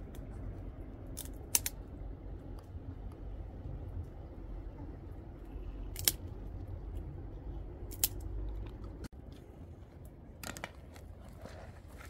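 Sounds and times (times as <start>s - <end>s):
dry twigs snapping: 0.0s - 1.9s, 5.9s - 7.0s, 7.8s - 9.0s
steady low rumble: 0.0s - 12.0s.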